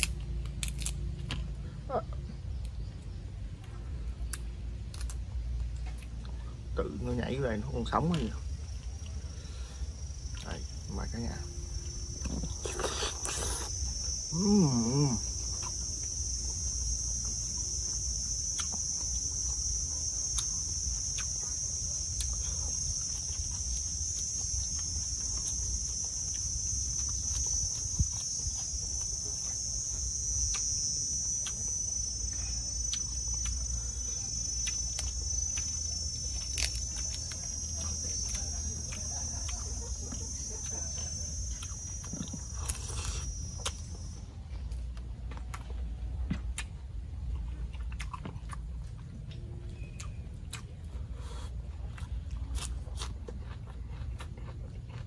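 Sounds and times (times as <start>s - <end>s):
insects chirring: 0.0s - 55.0s
person humming: 14.3s - 15.3s
chewing clicks: 18.4s - 55.0s.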